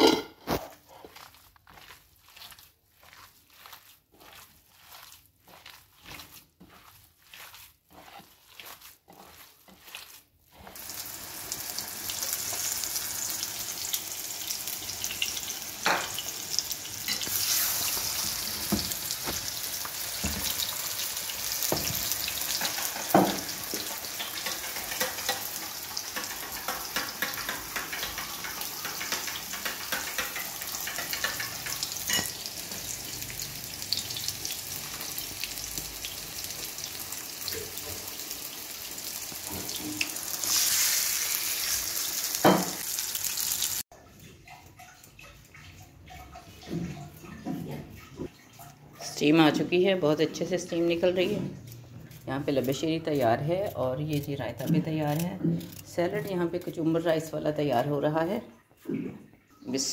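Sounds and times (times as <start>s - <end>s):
patties sizzling in oil: 0.0s - 43.9s.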